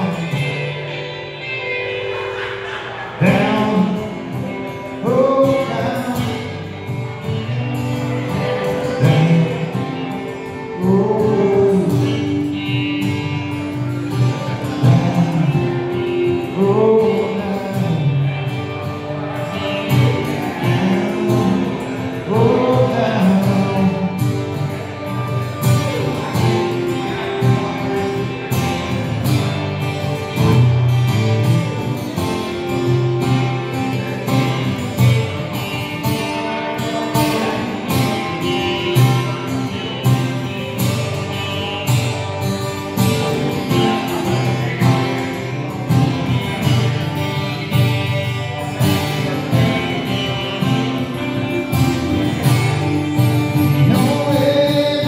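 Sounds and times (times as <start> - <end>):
man singing: 0.0 - 2.1, 3.0 - 30.5, 42.6 - 55.0
electric guitar: 0.0 - 55.0
strummed acoustic guitar: 0.0 - 55.0.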